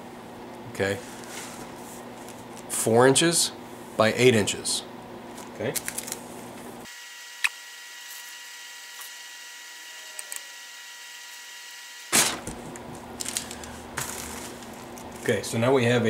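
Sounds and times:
faint electrical hum: 0.0s - 16.0s
tracing paper rustling: 12.1s - 15.4s.

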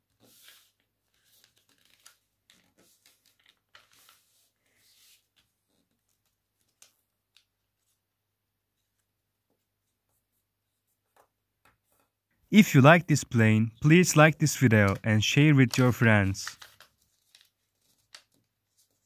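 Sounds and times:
paper rustling and creasing: 0.0s - 8.0s, 14.6s - 19.0s.

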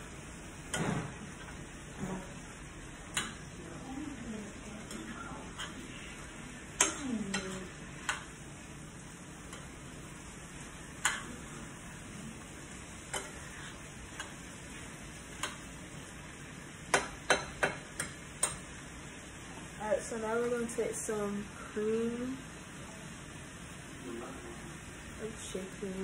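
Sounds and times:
light sizzle: 0.0s - 26.0s
spoon knocking against skillet: 3.1s - 3.5s, 6.7s - 8.4s, 11.0s - 11.5s, 13.0s - 14.5s, 15.2s - 15.8s, 16.8s - 18.7s.

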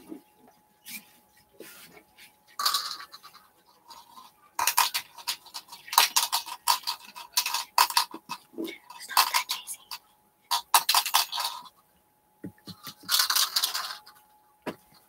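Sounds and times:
pieces rattling in plastic bottle: 2.6s - 11.7s, 12.7s - 14.1s.

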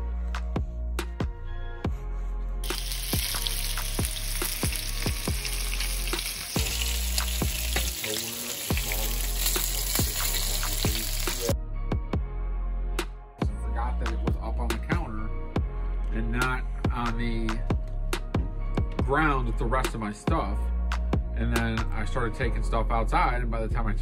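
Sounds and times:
background music with steady beat: 0.0s - 24.0s
food sizzling in hot oil: 2.6s - 11.6s.

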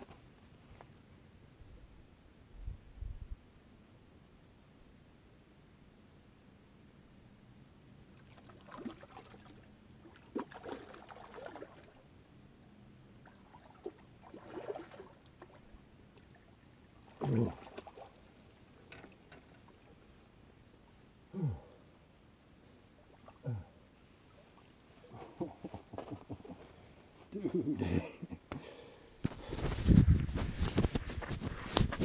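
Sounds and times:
water splashing: 8.2s - 12.0s, 13.2s - 18.2s.

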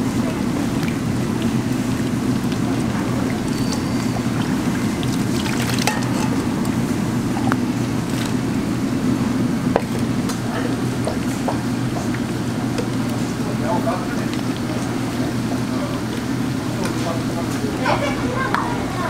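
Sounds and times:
broth bubbling in a pan: 0.0s - 17.8s
steel ladles clinking on a pan: 5.7s - 6.5s.

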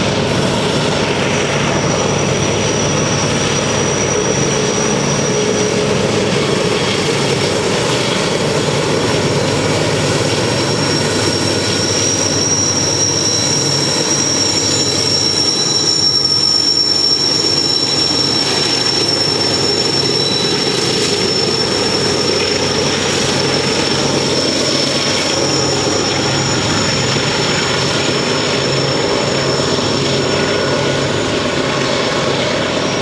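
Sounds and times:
locomotive engines rumbling: 0.0s - 33.0s
wheels squealing on rails: 0.0s - 33.0s.

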